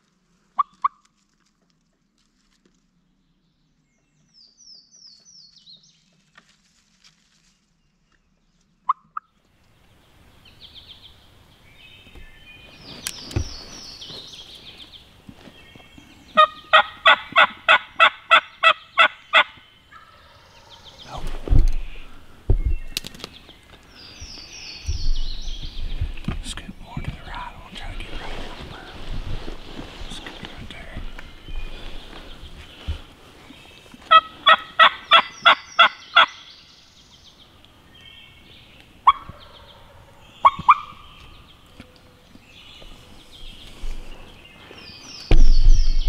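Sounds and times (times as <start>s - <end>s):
wild turkey yelping: 16.4s - 21.0s, 34.1s - 36.5s, 39.0s - 41.3s.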